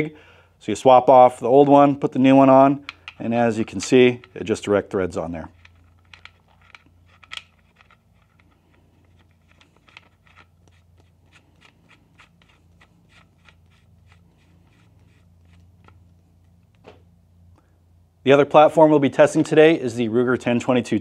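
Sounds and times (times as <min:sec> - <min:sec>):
small clicks and scrapes: 0:05.5 - 0:16.9.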